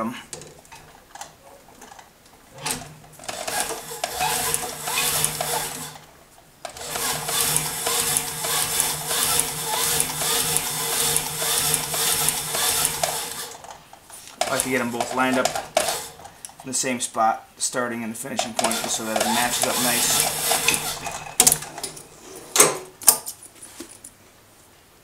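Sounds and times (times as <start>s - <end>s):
industrial sewing machine stitching: 2.6s - 6.0s, 6.7s - 13.7s, 14.4s - 16.3s, 18.6s - 21.9s.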